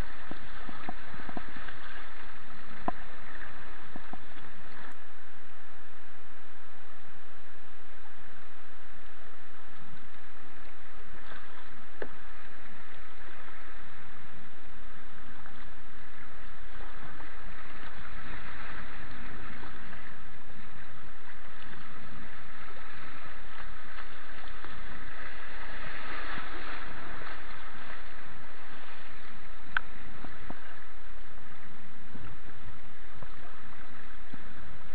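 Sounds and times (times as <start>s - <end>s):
river water rushing over rapids: 10.8s - 34.9s.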